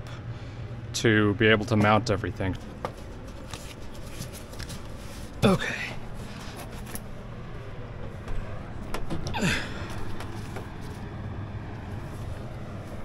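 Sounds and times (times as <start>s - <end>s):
low background hum: 0.0s - 13.0s
man grunting: 5.4s - 6.0s.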